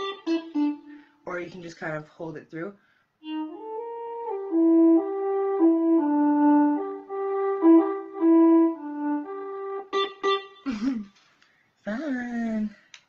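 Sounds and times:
electronic wind synth melody: 3.2 - 10.4.

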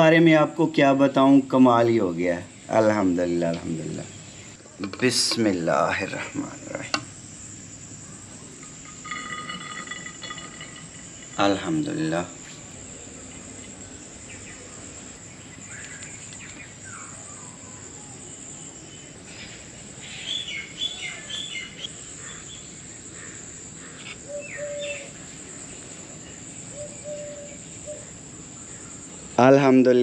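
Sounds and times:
birds chirping: 0.3 - 30.0
high-pitched insect drone: 2.0 - 30.0.

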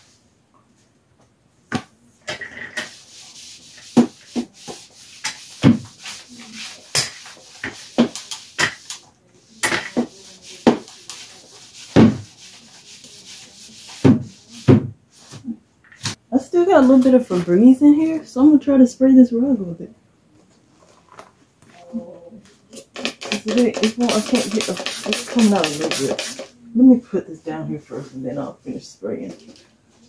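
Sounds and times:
sweeper swishing over tile floor: 2.8 - 16.2, 22.8 - 26.5.

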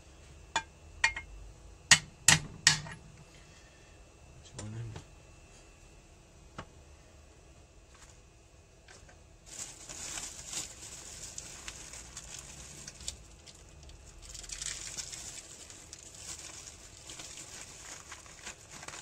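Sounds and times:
plastic wrapping crinkling: 9.4 - 19.0.

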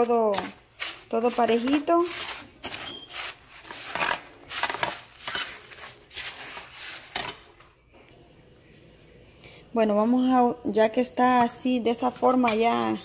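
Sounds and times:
gritty scraping in a bowl: 0.2 - 7.2.

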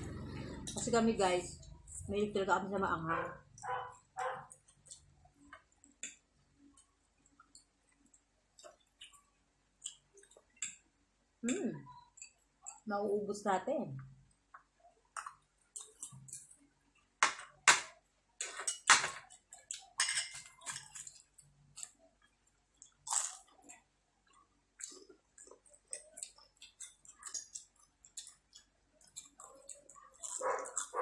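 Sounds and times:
chewing food: 3.2 - 10.9, 14.0 - 17.6, 18.4 - 31.0.

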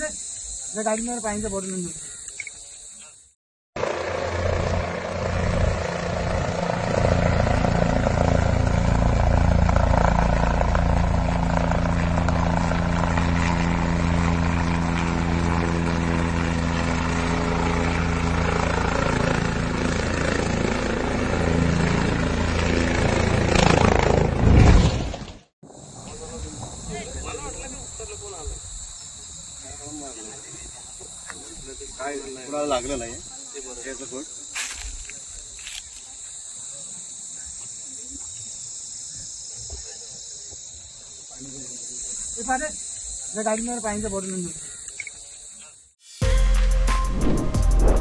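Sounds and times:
helicopter rotor and engine: 3.8 - 24.5
helicopter crash landing: 3.8 - 27.6.

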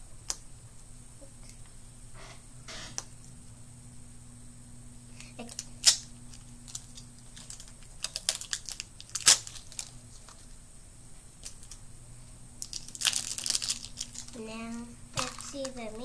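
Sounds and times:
plastic egg clicks and crinkles: 5.2 - 10.5, 11.4 - 11.8, 12.6 - 14.4, 15.2 - 16.0.

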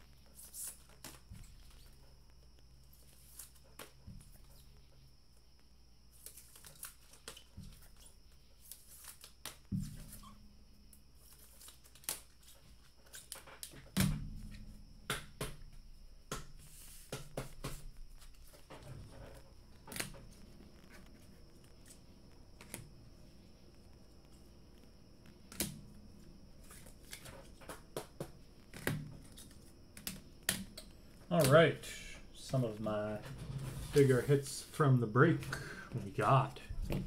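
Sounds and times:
cards clicking and rustling: 6.1 - 9.7, 11.2 - 13.9, 26.6 - 31.7.

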